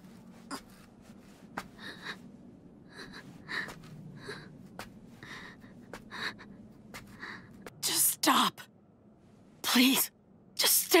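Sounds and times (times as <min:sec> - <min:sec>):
low steady hum: 0:00.0 - 0:11.0
woman panting: 0:01.6 - 0:07.6.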